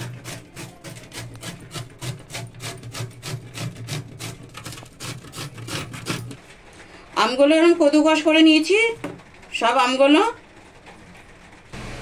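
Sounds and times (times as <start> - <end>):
mango grated on metal grater: 0.0 - 6.4.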